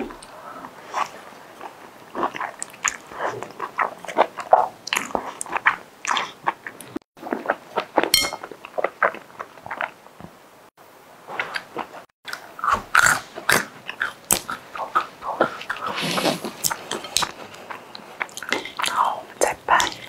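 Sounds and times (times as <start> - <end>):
person slurping and chewing noodles: 0.5 - 10.0, 12.4 - 20.0.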